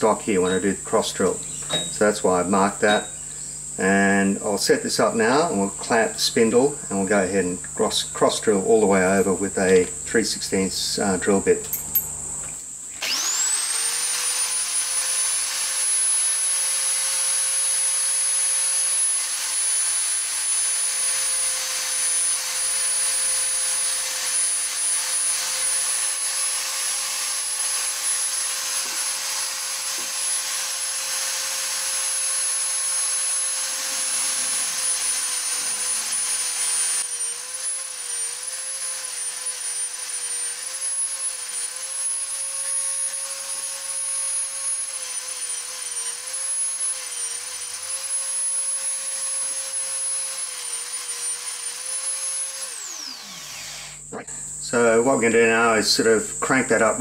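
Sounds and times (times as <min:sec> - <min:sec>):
electric drill whining: 0:00.0 - 0:04.4, 0:05.0 - 0:10.0, 0:10.9 - 0:57.0.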